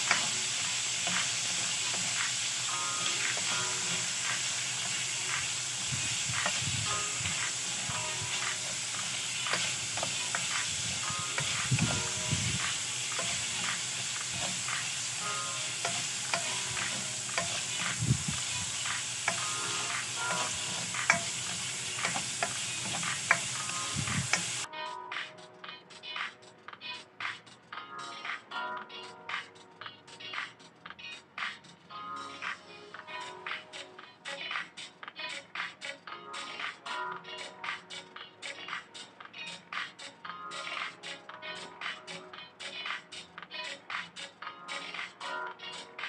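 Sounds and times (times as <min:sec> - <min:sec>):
pork sizzling in a pan: 0:00.0 - 0:24.7
spatula scraping and tapping pan: 0:15.9 - 0:18.0.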